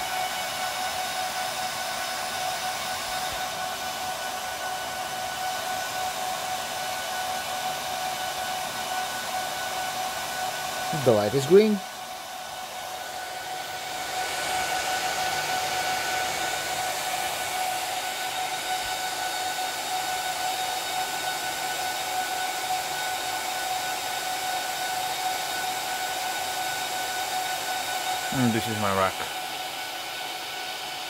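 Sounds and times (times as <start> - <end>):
server cooling fans whining: 8.2 - 20.0, 27.2 - 30.1.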